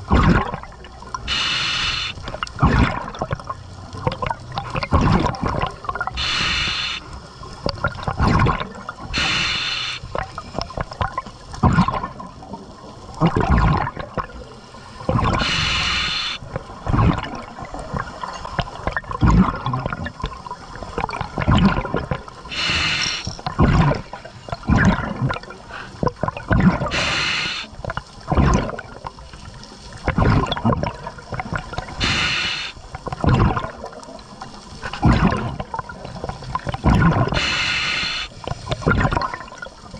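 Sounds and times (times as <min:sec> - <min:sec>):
gurgling exhaled bubbles: 0:00.0 - 0:39.9
regulator inhalation hiss: 0:01.3 - 0:02.2, 0:06.2 - 0:07.0, 0:09.2 - 0:10.1, 0:15.4 - 0:16.4, 0:22.5 - 0:23.4, 0:26.9 - 0:27.8, 0:32.0 - 0:32.8, 0:37.4 - 0:38.4.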